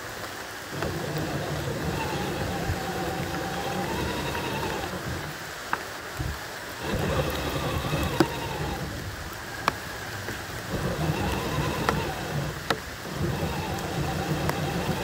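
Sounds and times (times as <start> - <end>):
tyres crackling through mud: 0.0 - 15.0
electric motor and gear whine: 0.7 - 15.0.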